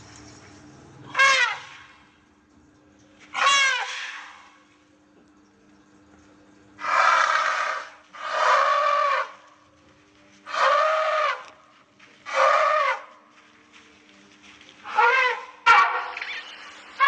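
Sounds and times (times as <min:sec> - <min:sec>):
elephant trumpeting: 0:01.1 - 0:02.0, 0:03.3 - 0:04.6, 0:06.8 - 0:09.5, 0:10.5 - 0:11.6, 0:12.2 - 0:13.2, 0:14.8 - 0:17.0.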